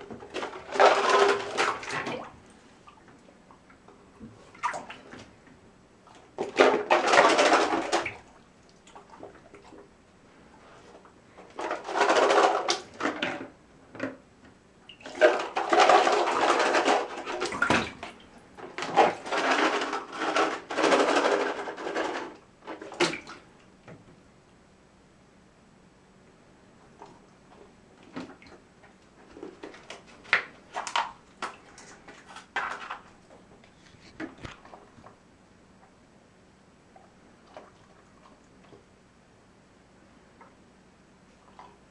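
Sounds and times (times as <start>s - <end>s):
bathwater sloshing and splashing: 0.0s - 13.6s, 14.9s - 23.6s, 36.9s - 38.9s.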